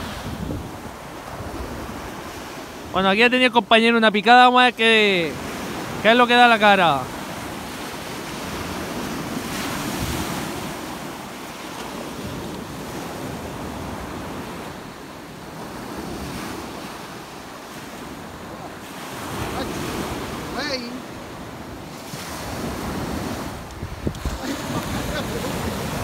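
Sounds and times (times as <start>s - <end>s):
wind buffeting microphone: 0.0s - 3.0s, 21.2s - 26.0s
sea surf washing onto beach: 0.0s - 26.0s.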